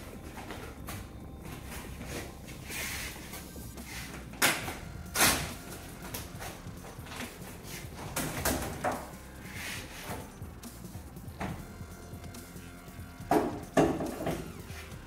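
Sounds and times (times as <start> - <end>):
vinyl film swishing rustles: 0.0 - 11.2.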